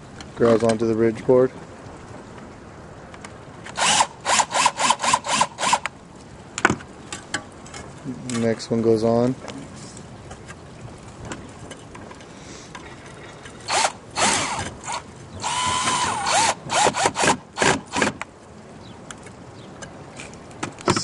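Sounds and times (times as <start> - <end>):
cordless drill driving a screw: 3.8 - 5.9, 13.7 - 18.2.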